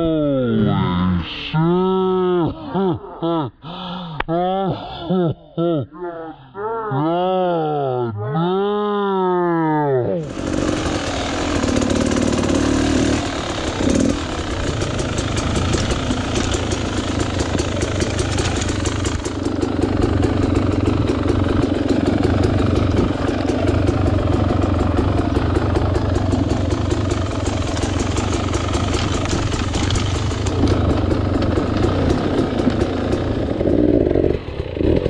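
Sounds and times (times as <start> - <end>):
dirt bike engine idling: 10.2 - 35.0.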